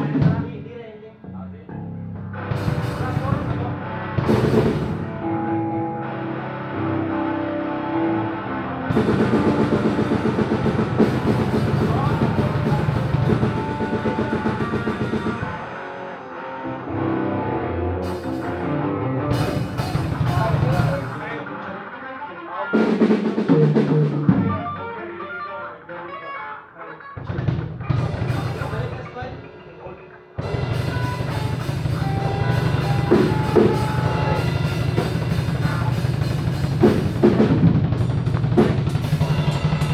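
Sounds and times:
bass guitar: 0.0 - 39.9
distorted electric guitars: 0.0 - 39.9
drum kit playing fast: 2.5 - 5.2, 8.9 - 16.0, 18.0 - 21.4, 22.8 - 24.9, 27.2 - 39.9.

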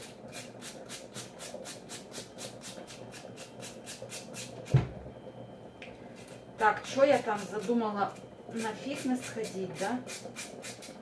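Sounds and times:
carrot grating on metal grater: 0.0 - 4.6, 6.9 - 11.0.

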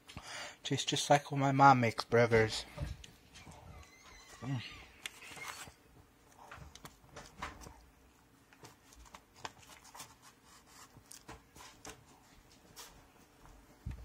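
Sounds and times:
foil wrapper crinkling: 5.0 - 5.8.

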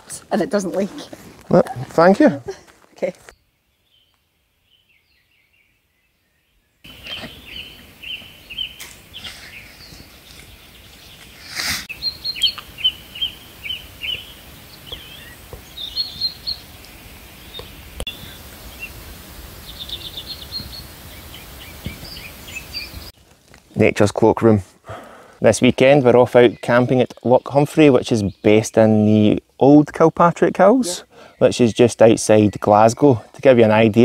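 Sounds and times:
small birds chirping: 0.0 - 24.0, 24.9 - 34.0
steady background hiss: 6.9 - 32.5.

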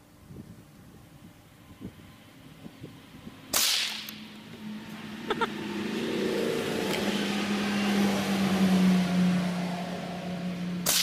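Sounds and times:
vehicle engine hum: 0.0 - 11.0
rifle shot: 3.5 - 4.2.

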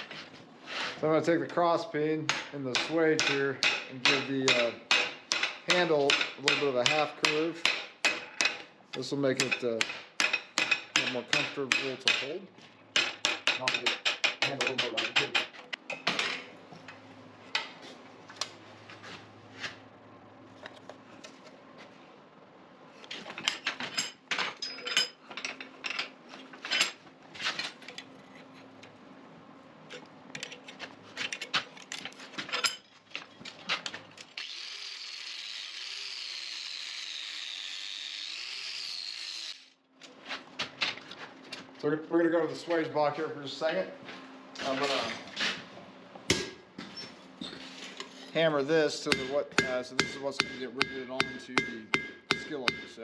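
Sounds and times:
hammer tapping on metal: 49.1 - 53.0.

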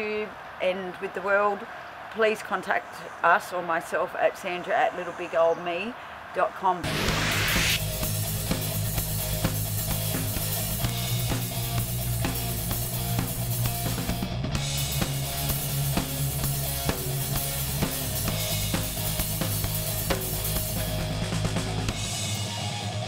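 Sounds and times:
sustained bass line: 6.9 - 22.0
drum kit beat: 7.0 - 22.8.

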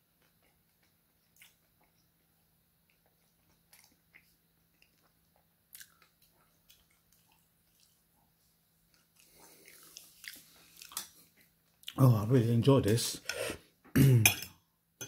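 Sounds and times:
wet chewing and mouth smacks: 0.2 - 12.0.

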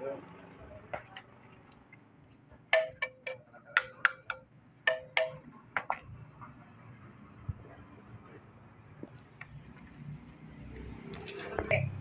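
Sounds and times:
tool tapping on metal: 2.7 - 6.0.

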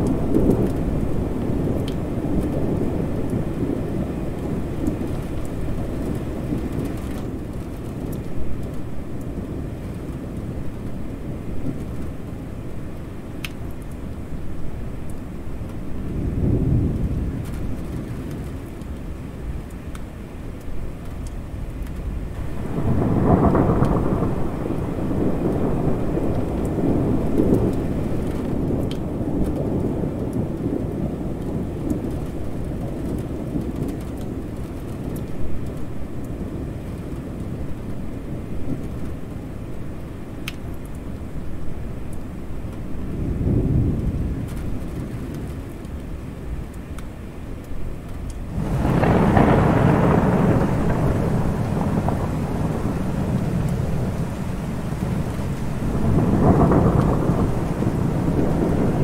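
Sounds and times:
steady rain: 0.0 - 59.0
rolling thunder: 15.6 - 18.6, 22.2 - 39.2, 43.0 - 45.6, 48.4 - 59.0.

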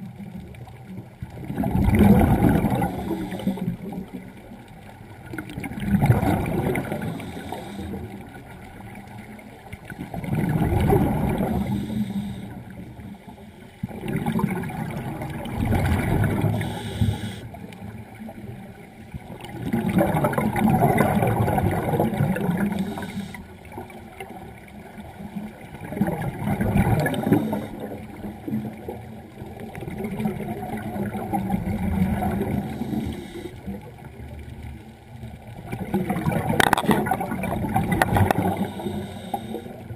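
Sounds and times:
diver exhaling bubbles underwater: 1.4 - 4.1, 5.5 - 8.1, 10.1 - 12.4, 13.9 - 17.4, 19.5 - 23.3, 25.8 - 28.7, 35.7 - 39.7.

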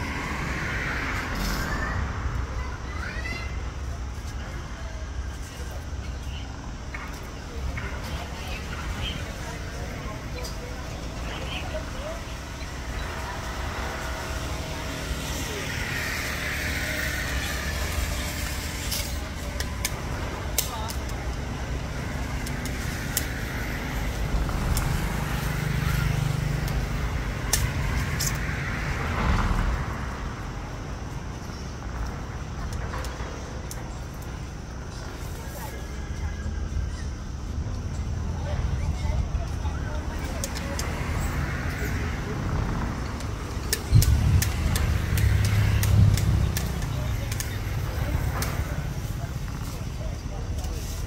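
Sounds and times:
vehicle engine hum passing: 0.0 - 3.3, 7.5 - 33.6, 38.1 - 51.0
sharp clicks: 43.2 - 48.6.

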